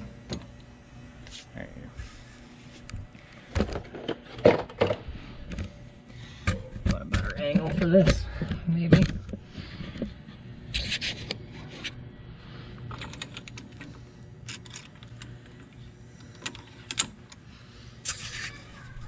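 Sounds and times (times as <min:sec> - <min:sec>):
caliper spreader scraping: 0:18.0 - 0:18.7.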